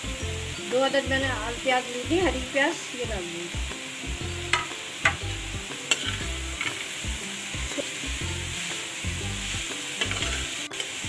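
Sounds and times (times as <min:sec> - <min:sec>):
food sizzling in pan: 0:00.0 - 0:11.0
metal spoon scraping pan: 0:05.8 - 0:07.0, 0:10.0 - 0:11.0.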